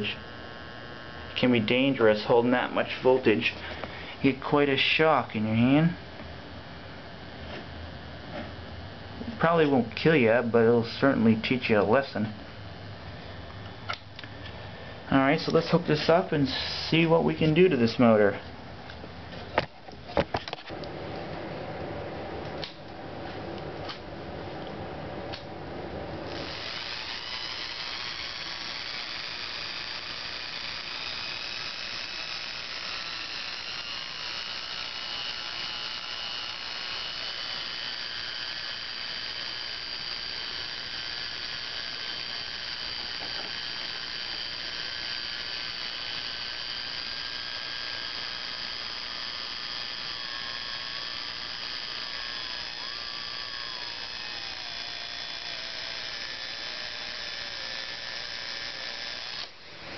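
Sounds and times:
motor brushes sparking: 0.0 - 5.7, 25.2 - 59.9
electric motor whine: 0.0 - 59.9.

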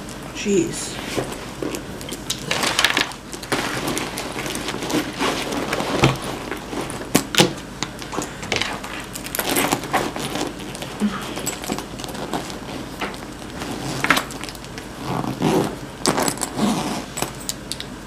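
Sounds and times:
backpack rustling: 2.4 - 7.1, 9.0 - 17.4.

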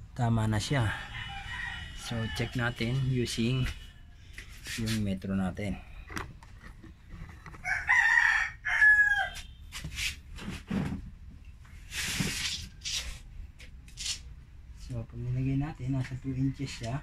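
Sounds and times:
rooster crowing: 0.8 - 4.4, 7.6 - 9.6.

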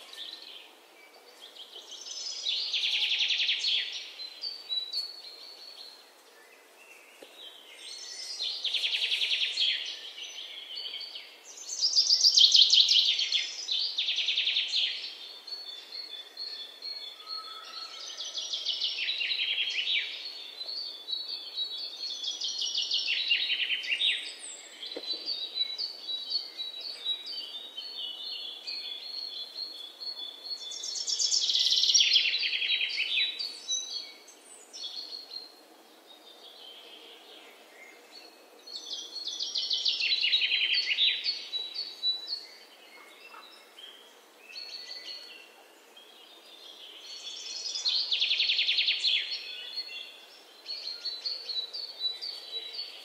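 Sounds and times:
birds chirping and trilling: 0.0 - 53.0.

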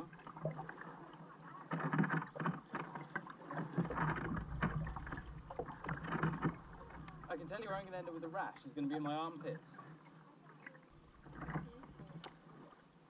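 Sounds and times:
paddle splashing through water: 0.0 - 13.0
water sloshing against hull: 0.0 - 13.0
low wind rumble: 3.8 - 7.9.

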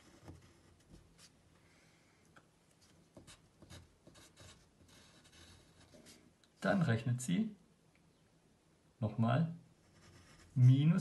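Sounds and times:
pencil scratching on paper: 0.0 - 1.3, 3.2 - 6.2, 9.8 - 11.0.

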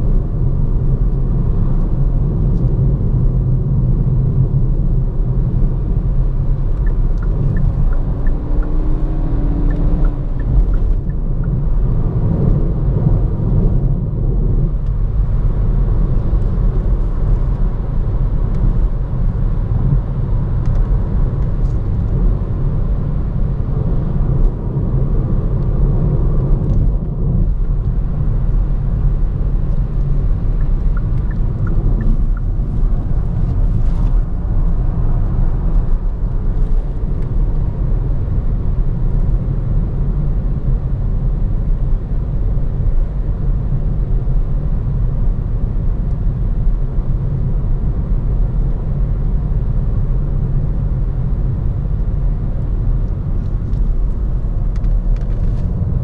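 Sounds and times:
low engine hum: 0.0 - 56.0
tyre and road noise: 0.0 - 56.0.

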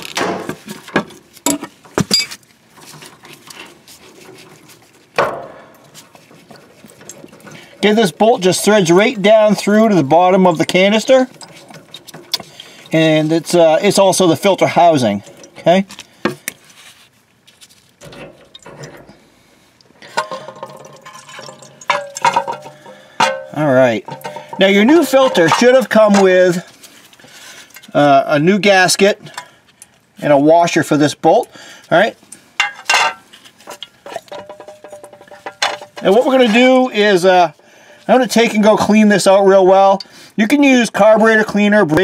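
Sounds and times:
metal canister clattering: 0.0 - 16.6, 18.0 - 19.3, 19.9 - 26.7, 32.6 - 36.8
handling noise: 0.0 - 27.9
light scraping and rubbing: 2.3 - 5.2, 10.6 - 23.2.

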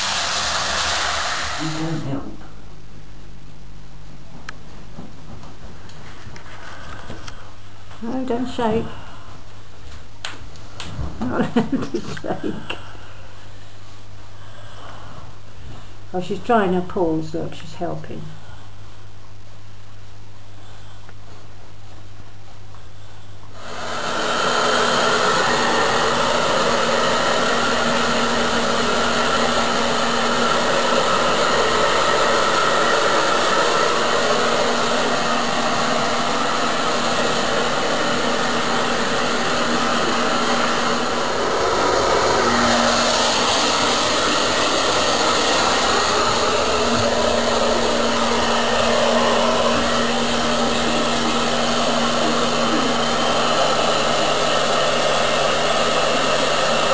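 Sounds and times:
hair dryer blowing: 0.0 - 2.3, 23.6 - 56.9.

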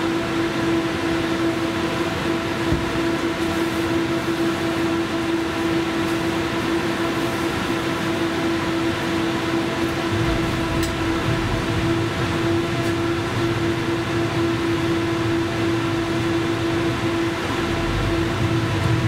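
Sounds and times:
tram rumbling on rails: 6.1 - 19.0
electrical hum: 9.5 - 19.0
low knock: 10.1 - 13.0.

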